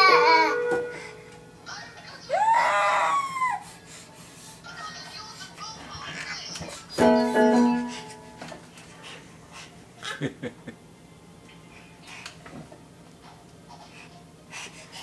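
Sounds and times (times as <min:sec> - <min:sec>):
electronic keyboard clashing chord: 0:07.0 - 0:08.5.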